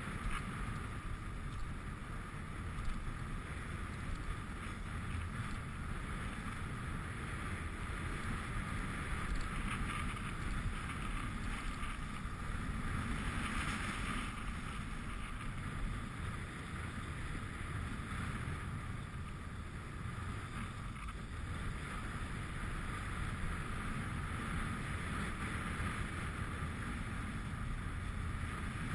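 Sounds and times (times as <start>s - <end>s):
sliding over packed snow: 0.0s - 16.5s
wind rushing over microphone: 0.0s - 28.9s.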